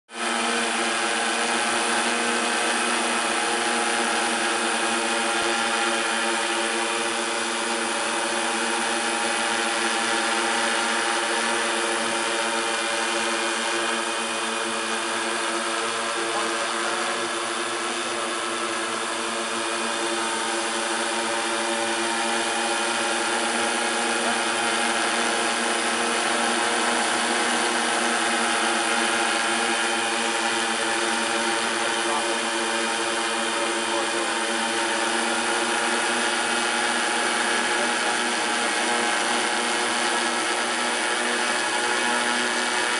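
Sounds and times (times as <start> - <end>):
drone hovering: 0.2 - 42.9.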